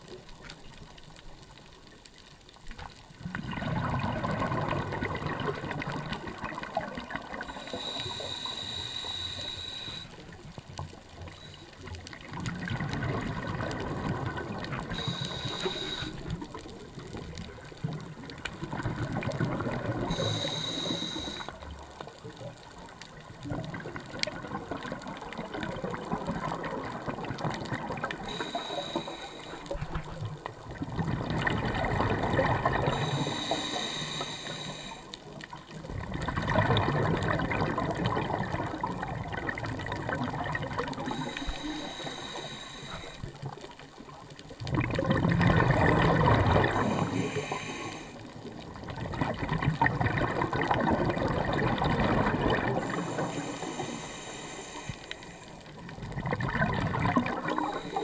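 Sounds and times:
bubbles rushing: 3.2 - 7.5, 12.3 - 14.9, 30.7 - 32.9, 35.9 - 41.2, 44.7 - 46.9, 48.7 - 52.8, 56.1 - 57.8
diver breathing through regulator: 7.4 - 10.4, 14.7 - 16.6, 20.0 - 21.7, 28.1 - 30.2, 32.7 - 35.3, 40.9 - 43.6, 46.3 - 48.5, 52.6 - 55.8, 57.1 - 58.0.

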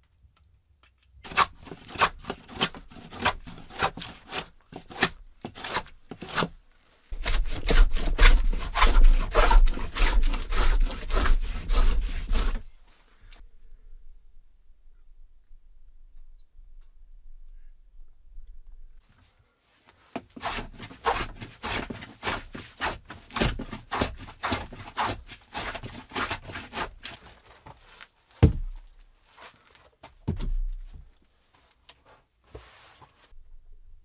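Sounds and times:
scraping on wooden boards: 1.3 - 13.4, 20.2 - 28.0
heavy wooden thuds: 28.4 - 28.9, 30.2 - 31.1.

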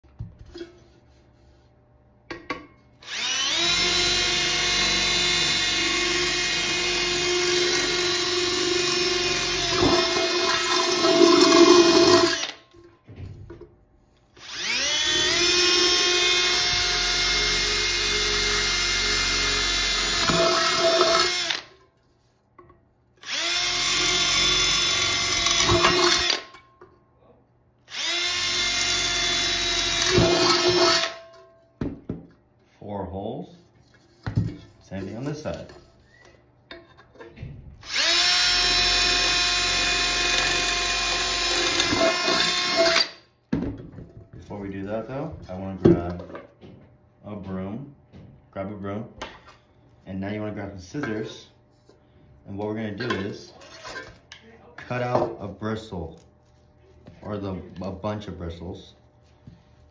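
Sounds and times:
cordless drill boring through metal: 3.0 - 12.6, 14.4 - 21.7, 23.2 - 26.6, 27.9 - 31.2, 37.8 - 43.2.

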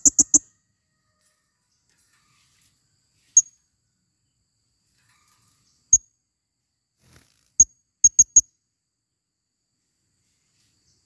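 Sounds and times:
parrot high-pitched chirps: 0.0 - 0.5.

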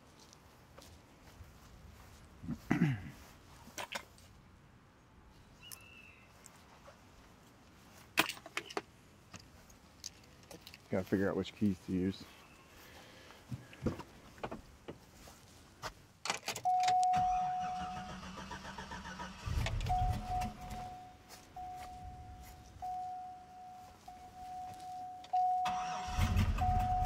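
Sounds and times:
dashboard warning chime: 16.6 - 18.1, 19.5 - 27.0
truck engine cranking and starting: 16.6 - 21.0, 25.3 - 27.0.

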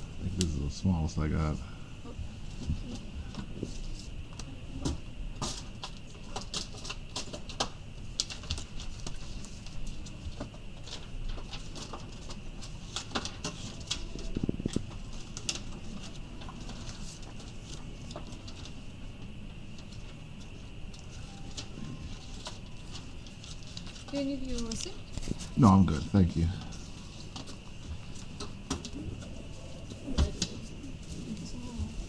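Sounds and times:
faint high hum: 0.0 - 32.0
paper rustling and tapping: 4.4 - 18.8, 26.6 - 29.3.

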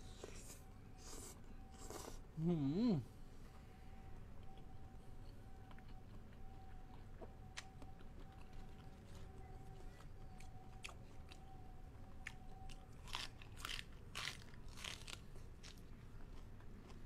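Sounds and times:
crunchy chewing: 4.4 - 17.0.

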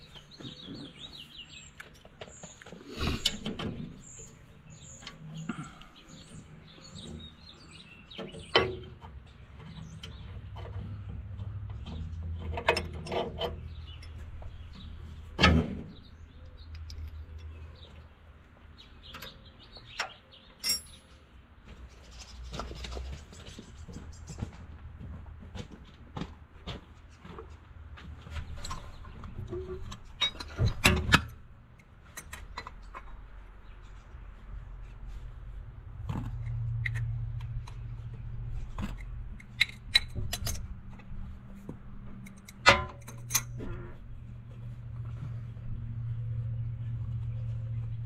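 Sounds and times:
small birds chirping: 0.0 - 24.8
wrench clinking on bolts: 19.9 - 21.1.

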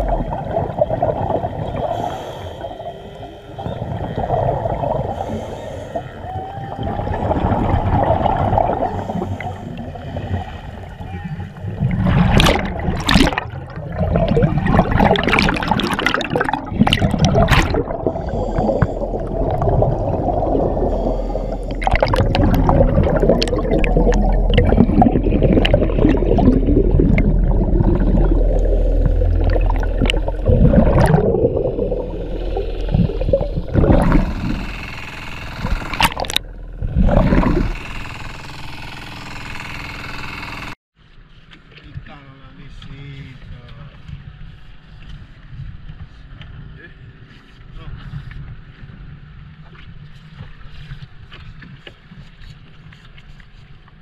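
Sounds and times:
rushes of water: 0.0 - 39.1
water sloshing and gurgling: 0.0 - 54.0.

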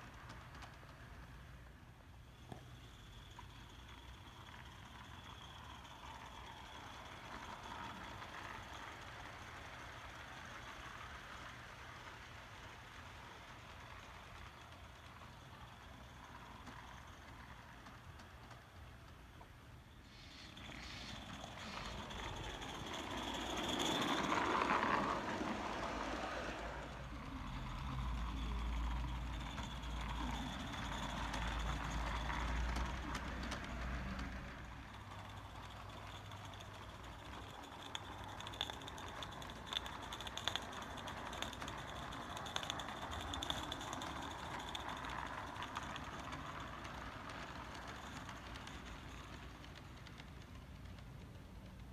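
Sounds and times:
locomotive running gear: 0.0 - 51.9
model train cars rumbling: 0.0 - 51.9
steam locomotive hissing: 20.0 - 34.5.

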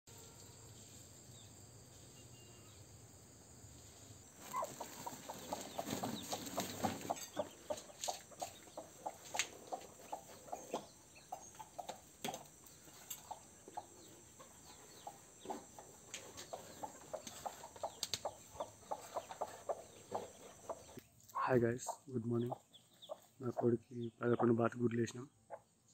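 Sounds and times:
hen clucking: 4.4 - 12.5, 13.2 - 24.6.

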